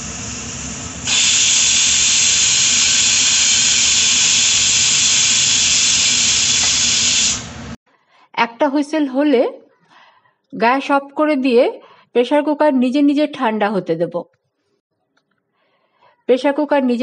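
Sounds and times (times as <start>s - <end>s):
pressure cooker whistle: 0.0s - 7.6s.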